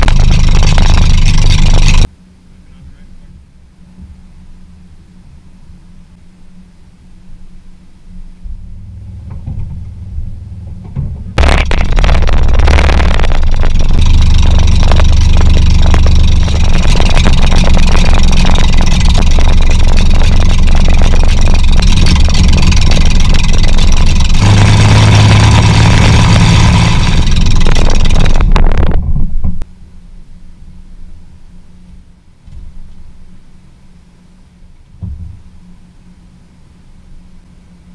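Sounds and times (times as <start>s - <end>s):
aircraft engine cranking and running: 0.0s - 2.1s, 8.0s - 29.7s.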